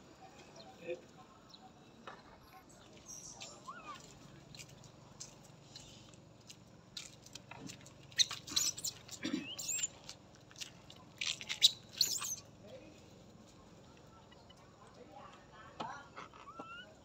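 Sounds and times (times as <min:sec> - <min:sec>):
monkeys squeaking and chirping: 0:03.1 - 0:04.3, 0:08.0 - 0:10.1, 0:11.2 - 0:12.6, 0:16.2 - 0:17.0
low monkey grunt: 0:08.4 - 0:09.8.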